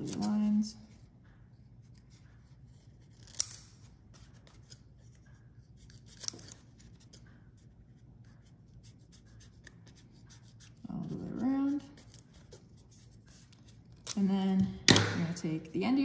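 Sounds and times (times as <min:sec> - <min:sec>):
scissors snipping foam: 0:03.0 - 0:04.8.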